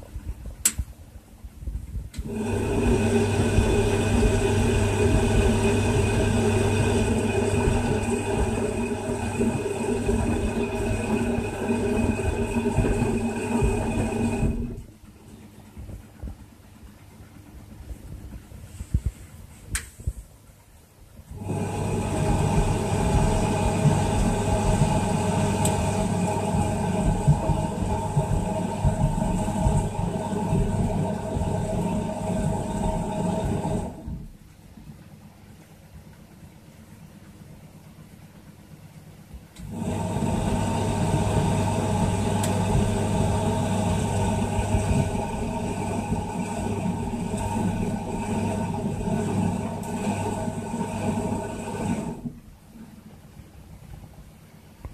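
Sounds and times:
washing machine motor whirring: 2.1s - 19.1s, 21.2s - 34.6s, 39.5s - 53.2s.

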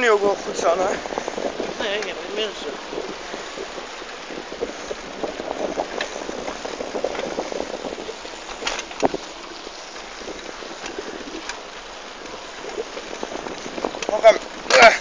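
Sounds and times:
bicycle rolling: 0.0s - 15.0s
bicycle rattling clicks: 3.5s - 15.0s.

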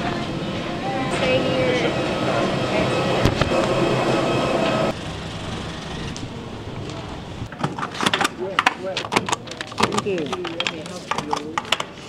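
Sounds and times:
airliner cabin hum: 0.0s - 7.5s
jet bridge ambience: 0.0s - 12.0s.

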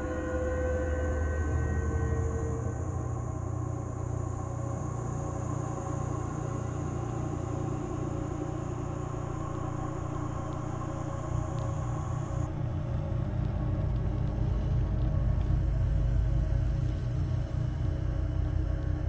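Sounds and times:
low rumbling drone: 0.0s - 19.0s.

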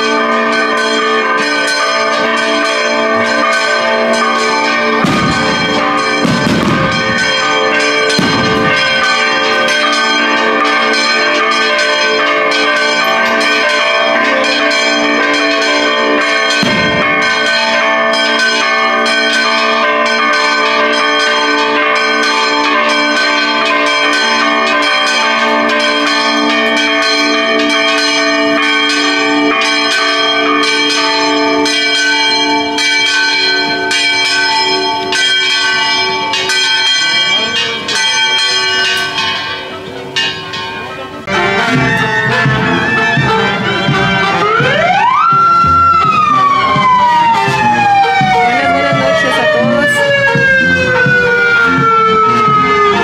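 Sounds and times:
church bells pealing: 0.0s - 53.0s
dull low thumps: 5.0s - 7.4s.

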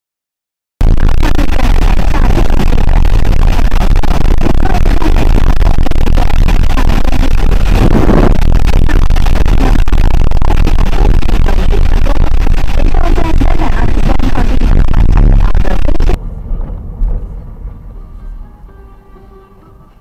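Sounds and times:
road noise: 16.2s - 19.9s.

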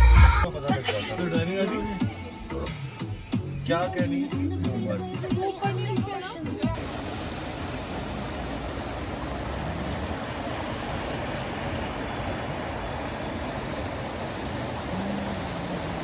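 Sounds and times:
stream flowing over rocks: 6.8s - 16.0s.

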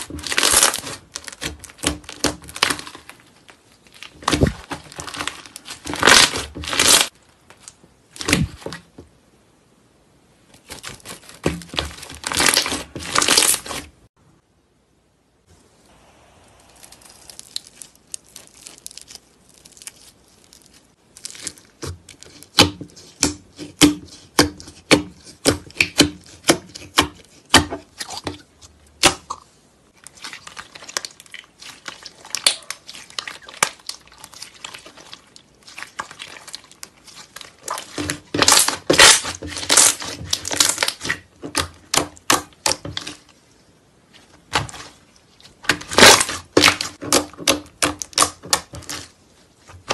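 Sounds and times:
slime popping and crackling: 0.0s - 3.3s, 3.9s - 7.2s, 10.6s - 13.8s, 16.6s - 23.9s, 30.1s - 43.2s, 45.6s - 49.1s.

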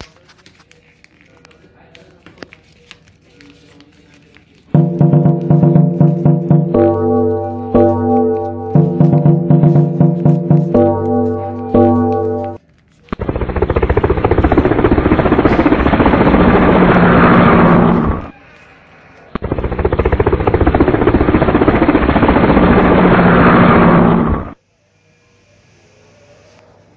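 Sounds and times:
background music: 4.8s - 12.6s
rapidly pulsing aircraft engine: 13.2s - 18.3s, 19.4s - 24.6s.

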